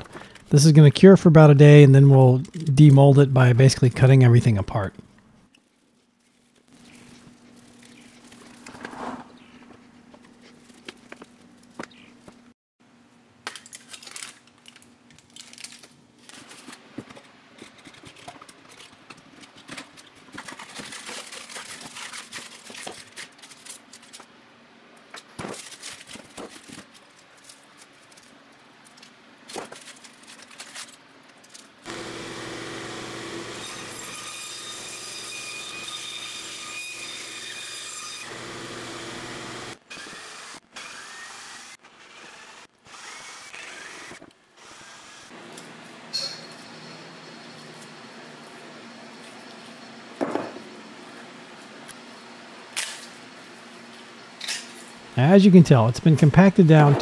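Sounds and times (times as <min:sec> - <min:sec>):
aluminium foil crinkling: 0:05.5 - 0:08.8, 0:13.5 - 0:16.9, 0:17.6 - 0:24.3, 0:25.1 - 0:31.8
power tool running: 0:31.9 - 0:45.4.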